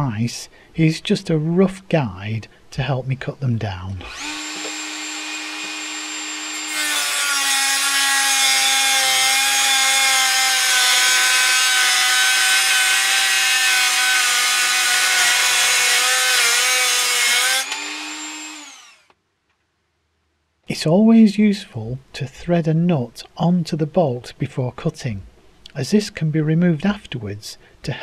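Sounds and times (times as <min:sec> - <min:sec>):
rotary tool whining: 0:04.1 - 0:19.1.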